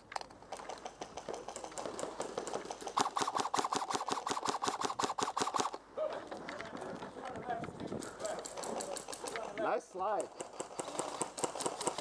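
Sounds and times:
airsoft rifle firing: 2.3s - 5.8s.

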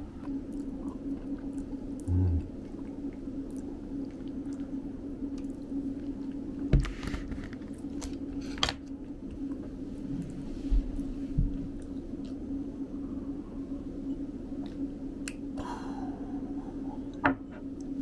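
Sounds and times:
person chewing: 0.0s - 6.5s
low hum: 0.0s - 18.0s.

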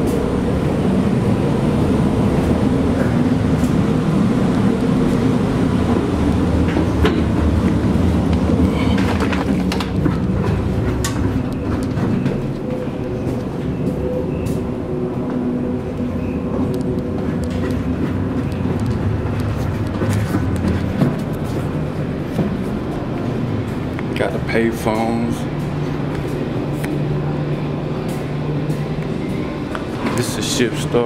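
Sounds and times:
ship machinery rumble: 0.0s - 31.0s
footsteps and handling knocks: 6.6s - 15.5s, 16.7s - 24.2s.

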